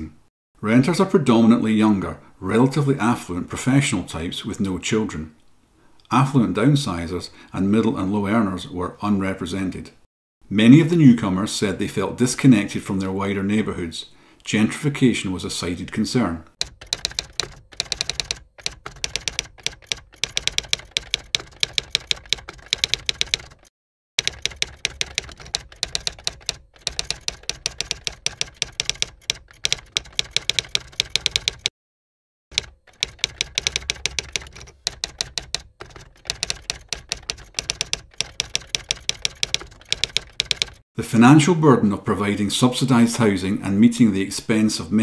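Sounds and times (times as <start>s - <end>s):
typewriter key clacks: 16.6s - 31.7s, 32.5s - 40.8s.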